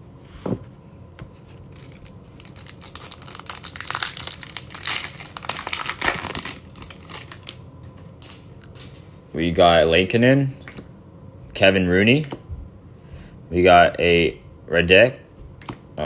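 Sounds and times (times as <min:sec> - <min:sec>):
card pack wrapper crinkling: 0:01.5 - 0:07.6.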